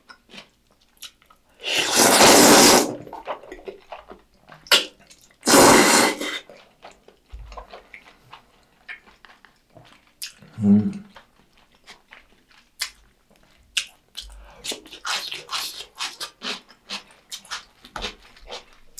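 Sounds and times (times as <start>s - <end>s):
soft chewing and mouth clicks: 0.0s - 1.5s, 3.0s - 5.4s, 6.3s - 18.9s
noodle slurping: 1.6s - 3.4s, 4.7s - 6.6s.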